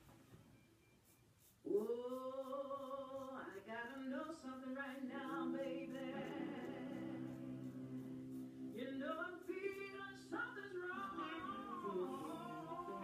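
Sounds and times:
blues music: 0:05.4 - 0:13.0.

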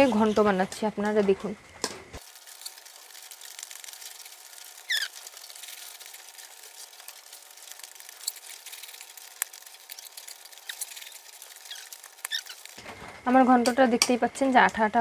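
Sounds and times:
sticky mash squelching: 0:02.2 - 0:12.8.

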